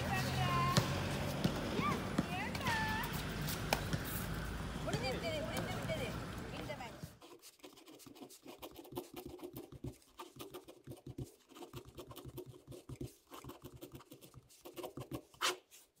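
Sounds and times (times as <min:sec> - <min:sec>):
pen scratching on paper: 0:07.0 - 0:16.0.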